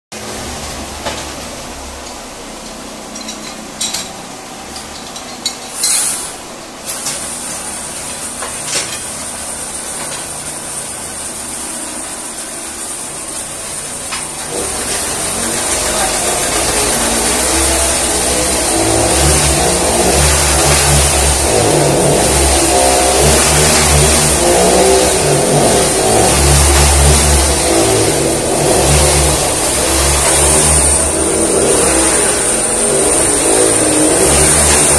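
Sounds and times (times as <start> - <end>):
machine motor rumbling: 0.2 - 34.9
sharp knocks and clinks: 3.1 - 6.2.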